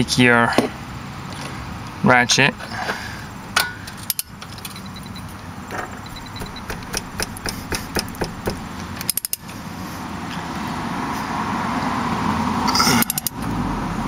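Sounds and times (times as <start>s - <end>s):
hand ratchet clicking: 4.0s - 4.8s, 6.0s - 9.5s, 13.0s - 13.4s.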